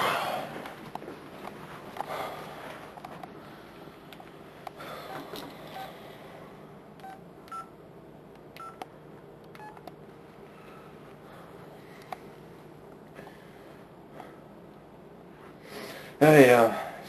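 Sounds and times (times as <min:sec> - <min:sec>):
phone keypad beeps: 0:07.0 - 0:07.7, 0:08.6 - 0:08.8, 0:09.6 - 0:09.8.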